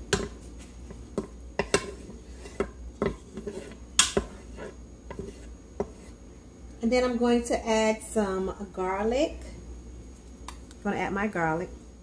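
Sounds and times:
wooden spatula knocking in a pot: 0.0s - 0.4s, 1.1s - 4.5s.

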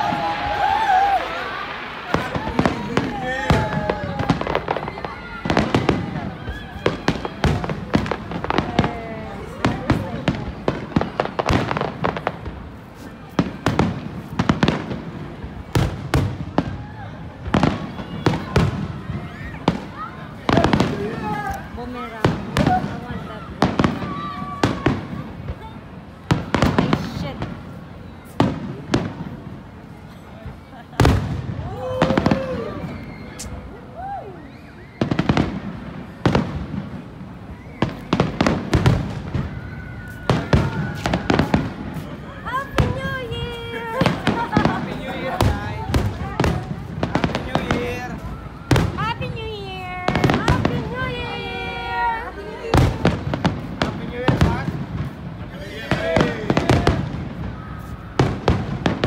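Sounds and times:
fireworks bangs: 0.0s - 33.8s, 34.6s - 59.0s.

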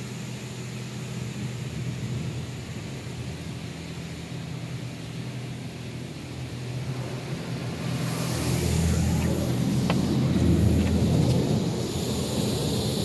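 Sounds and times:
car wash equipment rumble: 0.0s - 13.0s
high hiss of spray: 7.3s - 13.0s.

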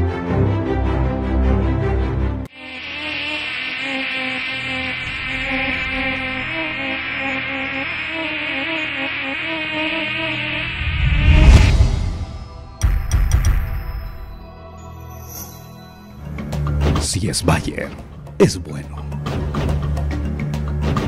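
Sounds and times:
flies buzzing: 2.5s - 14.5s
loud rushing swell: 3.5s - 14.2s.

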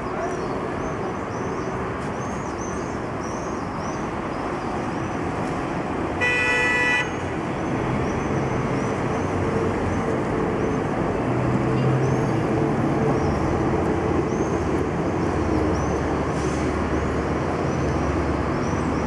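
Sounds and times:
bus engine hum: 0.0s - 19.0s
road traffic noise: 0.0s - 19.0s
vehicle horn: 6.2s - 7.2s.

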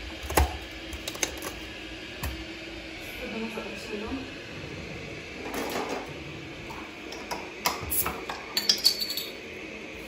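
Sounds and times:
ice cubes clinking in glass: 8.6s - 9.4s.

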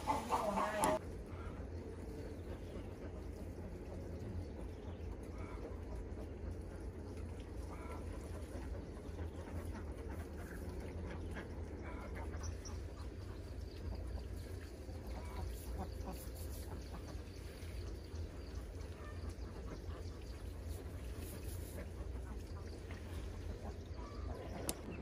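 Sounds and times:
ducks quacking: 0.0s - 25.0s.

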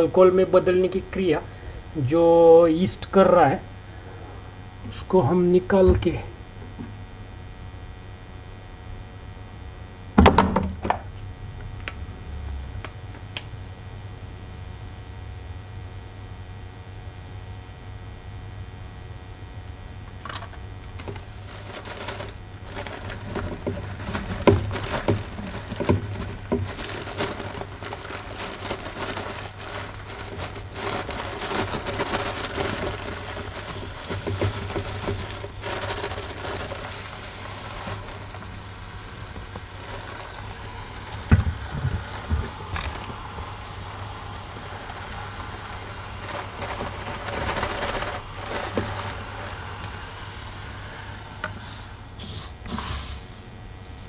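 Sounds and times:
plastic packet crinkling: 20.2s - 50.0s
sugar pouring into funnel: 21.2s - 51.8s.

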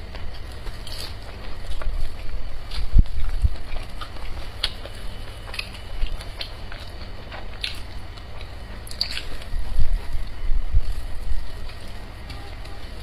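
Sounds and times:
close-miked chewing: 0.0s - 13.0s
low hum: 0.0s - 13.0s
wet mouth clicks and smacks: 8.4s - 9.3s.

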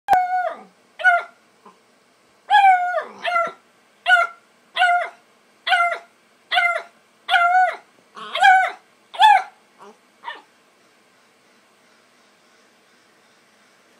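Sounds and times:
puppy barking: 1.0s - 1.4s, 2.5s - 10.5s.

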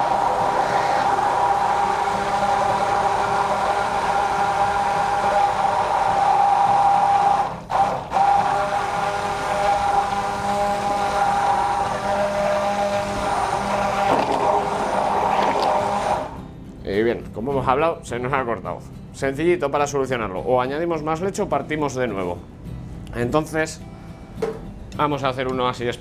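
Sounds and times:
stick blender motor whine: 0.0s - 16.4s.

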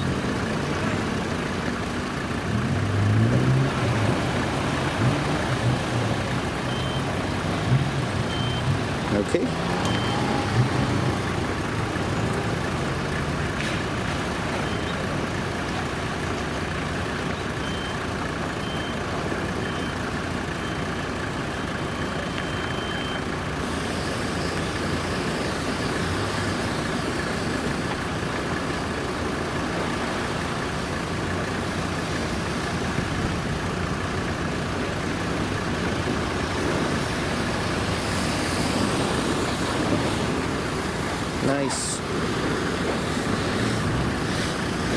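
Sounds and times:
vehicle engine running: 0.0s - 44.9s
faint short beeps: 8.2s - 8.8s, 9.7s - 10.5s, 21.6s - 23.3s.

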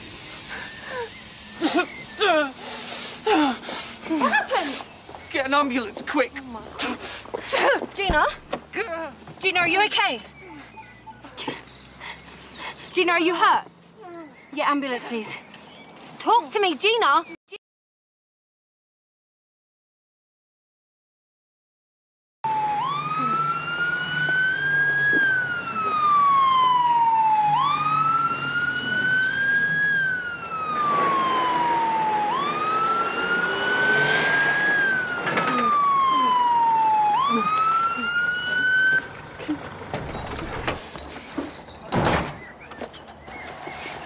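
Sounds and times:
ambulance siren wailing: 22.4s - 39.7s.

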